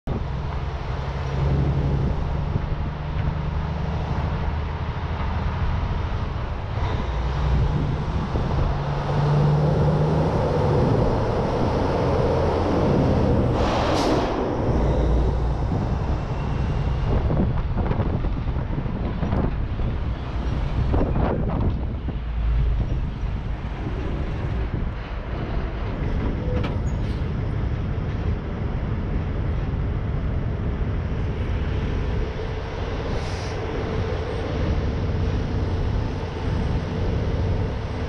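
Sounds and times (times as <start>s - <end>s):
road rumble: 0.0s - 38.0s
diesel truck engine running: 0.1s - 38.0s
wind noise on microphone: 0.1s - 38.0s
sharp air hiss: 33.2s - 33.6s.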